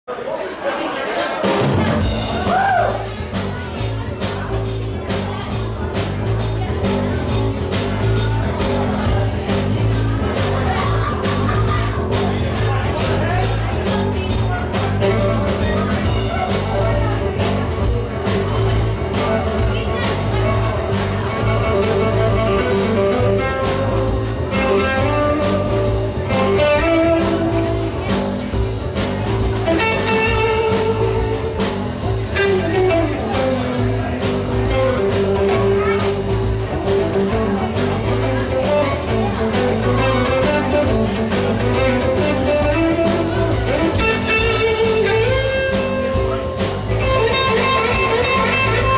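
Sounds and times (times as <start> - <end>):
drum kit beat: 0.7 - 48.9
electric guitar: 1.4 - 48.9
electric bass: 1.6 - 48.9.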